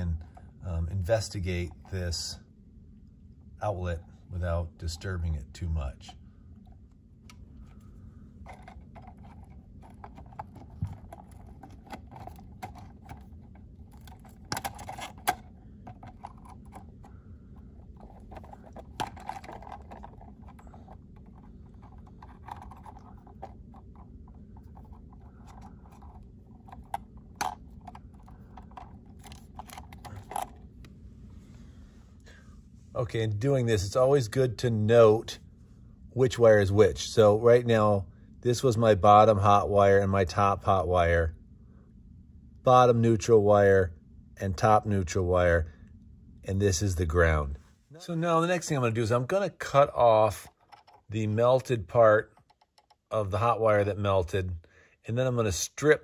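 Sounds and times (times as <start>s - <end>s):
faint low hum: 0.0s - 56.0s
handling of outlet and wires: 6.6s - 31.0s, 50.3s - 51.2s, 52.2s - 53.1s.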